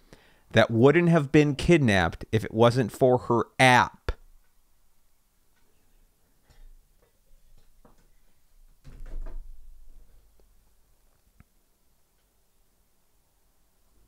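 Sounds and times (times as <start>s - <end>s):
laptop rustle and knock on glass: 8.8s - 9.8s.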